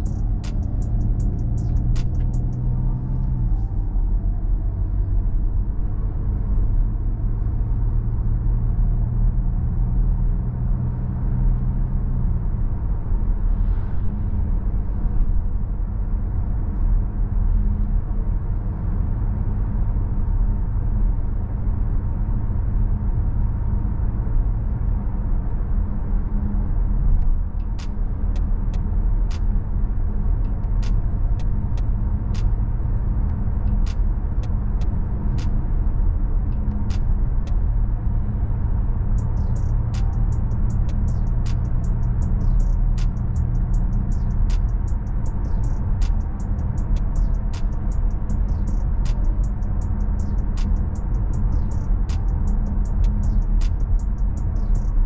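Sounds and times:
sharp ticks: 0:00.0 - 0:02.6, 0:39.1 - 0:55.0
car engine running: 0:00.0 - 0:10.0, 0:19.3 - 0:55.0
road rumble: 0:00.0 - 0:55.0.

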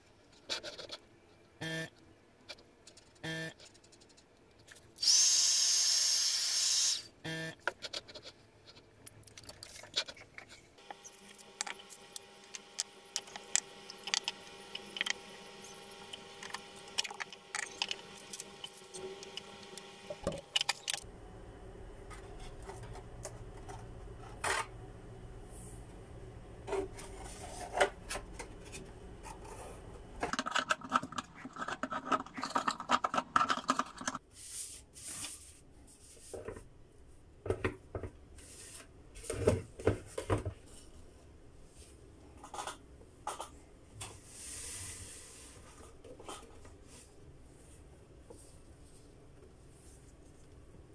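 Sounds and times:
plastic pieces clicking and rubbing: 0:30.3 - 0:34.2.

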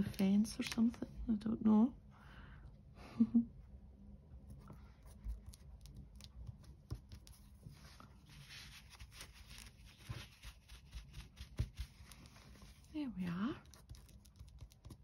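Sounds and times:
paper rustling: 0:05.2 - 0:12.9.

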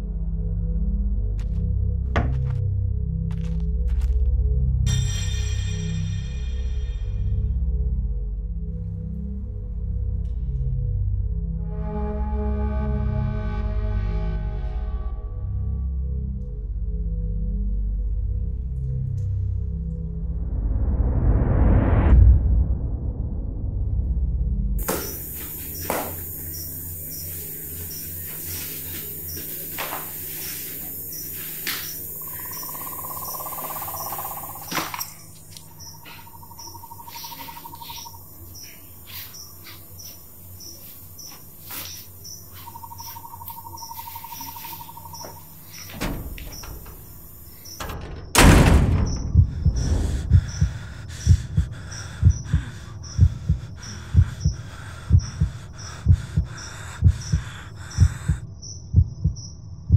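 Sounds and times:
crickets chirping: 0:24.8 - 0:59.9
low heartbeat-like thumping: 0:48.4 - 0:59.9.

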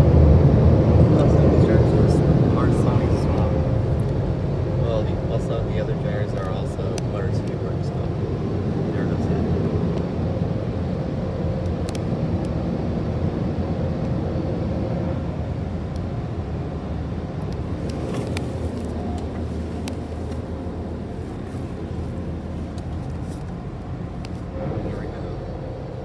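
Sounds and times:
car interior rumble: 0:00.0 - 0:26.0
faint steady hum: 0:00.0 - 0:26.0
light ticks: 0:11.6 - 0:12.6.

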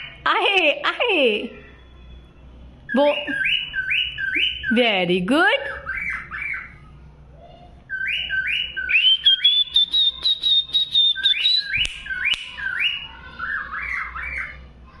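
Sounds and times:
cockatiel whistling and chirping: 0:07.9 - 0:14.5.

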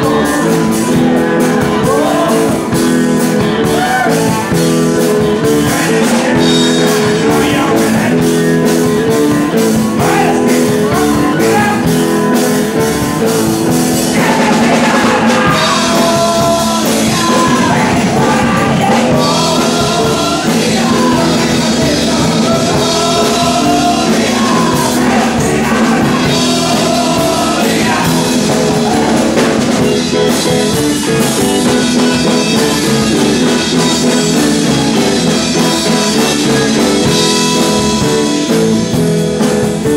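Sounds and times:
person singing: 0:00.0 - 0:38.6
drum beat: 0:00.0 - 0:39.9
electric guitars: 0:00.0 - 0:39.9.

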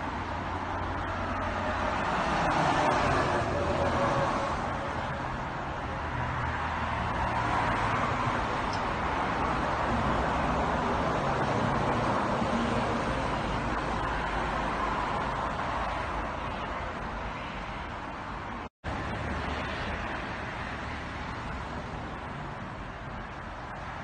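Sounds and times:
road traffic passing: 0:00.0 - 0:24.0.

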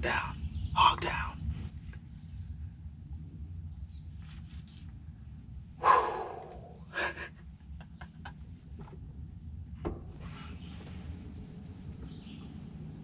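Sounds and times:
loud sudden exhale: 0:05.8 - 0:06.7
man breathing heavily: 0:05.8 - 0:07.3.

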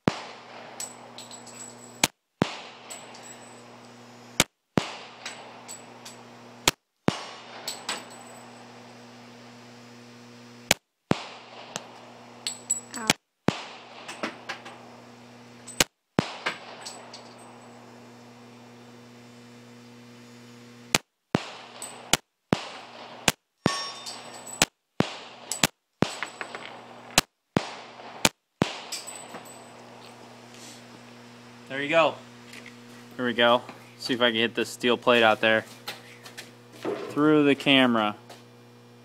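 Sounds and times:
metallic clangs of steel targets: 0:00.0 - 0:09.0, 0:11.4 - 0:14.8, 0:15.6 - 0:17.8, 0:21.4 - 0:28.0, 0:28.6 - 0:30.2
pistol shots: 0:00.0 - 0:09.1, 0:10.7 - 0:14.9, 0:15.7 - 0:18.1, 0:20.9 - 0:30.0.

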